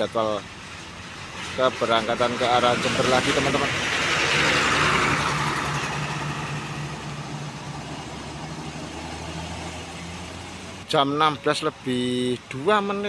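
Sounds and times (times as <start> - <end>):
bus diesel engine running: 0.0 - 13.0
rushing noise: 0.4 - 10.8.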